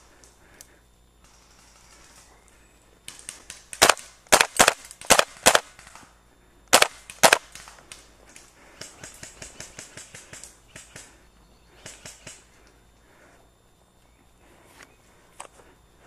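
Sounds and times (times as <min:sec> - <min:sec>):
airsoft rifle single shots: 0:03.7 - 0:06.0, 0:06.7 - 0:07.7
faint ticks: 0:11.8 - 0:13.1.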